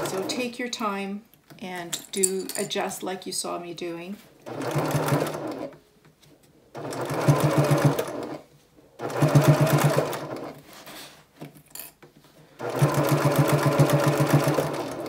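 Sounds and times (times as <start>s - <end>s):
sewing machine stitching: 0.0s - 0.4s, 4.4s - 5.8s, 6.7s - 8.4s, 9.0s - 10.6s, 12.6s - 15.0s.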